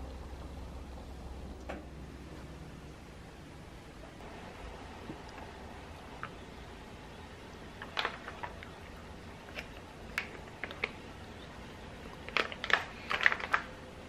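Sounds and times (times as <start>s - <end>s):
plastic bags crinkling: 7.6s - 13.8s.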